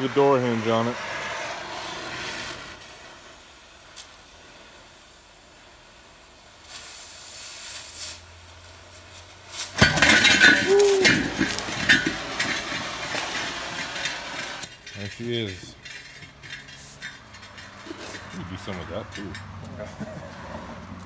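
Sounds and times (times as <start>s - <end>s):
cutting torch hissing: 0.0s - 9.8s, 10.7s - 15.6s
steel disc clanging on concrete: 9.6s - 21.0s.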